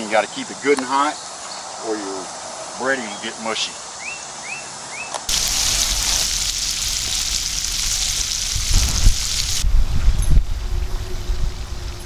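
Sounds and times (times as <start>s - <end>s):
deep-frying sizzle in oil: 5.3s - 9.6s.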